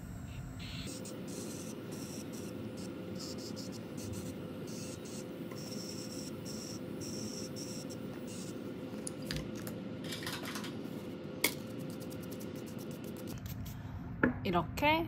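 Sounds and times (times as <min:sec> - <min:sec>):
electric nail drill humming: 0:00.0 - 0:08.6.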